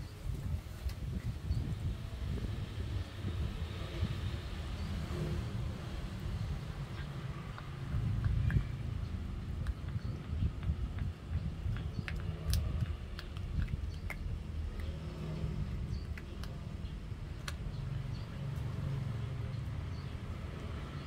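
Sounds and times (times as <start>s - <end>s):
low background rumble: 0.0s - 21.0s
puppy gnawing on bone: 6.4s - 18.7s.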